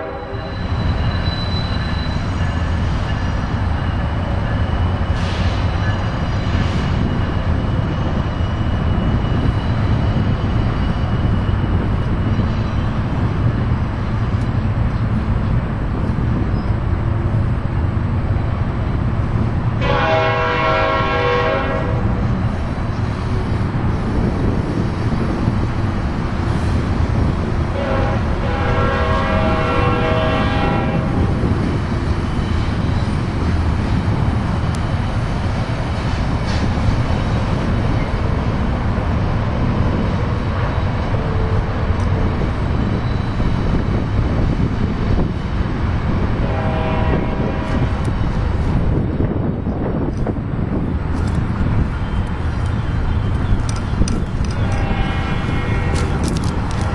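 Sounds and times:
locomotive horn blast: 0.0s - 0.6s, 19.8s - 22.2s, 27.7s - 31.4s, 46.4s - 47.9s, 54.4s - 56.4s
freight train wheels rumbling on rail: 0.0s - 56.9s.

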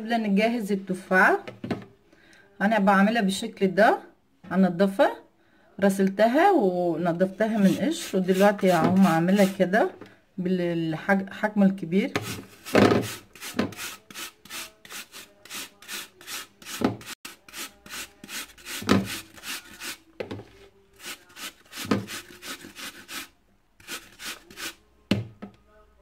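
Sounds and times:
apple grating on hand grater: 7.5s - 9.6s, 12.2s - 20.1s, 21.0s - 24.8s.

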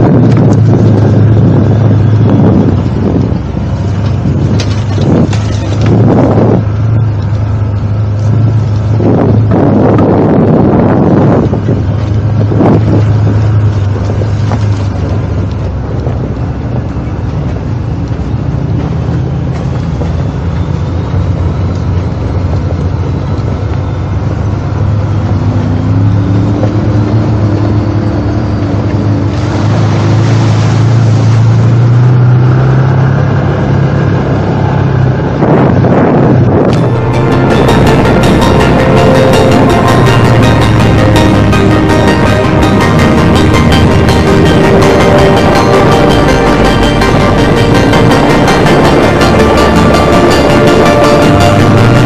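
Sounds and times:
wind buffeting microphone: 0.0s - 38.6s.

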